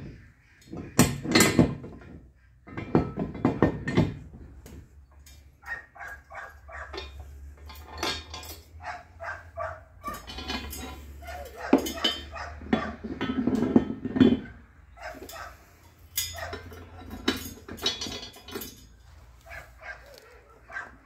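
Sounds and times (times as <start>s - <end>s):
metal pin and chain clinking: 5.2s - 8.8s, 10.0s - 12.4s, 15.0s - 20.3s.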